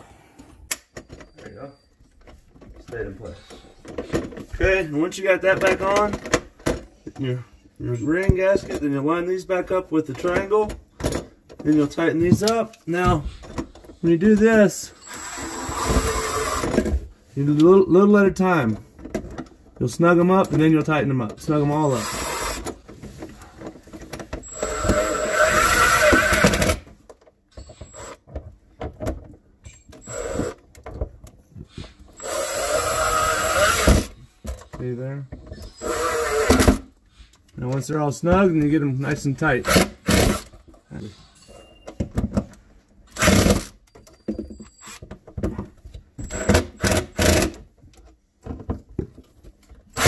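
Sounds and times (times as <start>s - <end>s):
cordless drill driving screws: 14.9s - 16.9s, 21.8s - 22.8s, 24.4s - 26.8s, 27.6s - 28.2s, 30.0s - 30.6s, 32.2s - 34.2s, 35.6s - 36.9s, 39.6s - 40.5s, 43.1s - 43.8s, 46.2s - 47.6s.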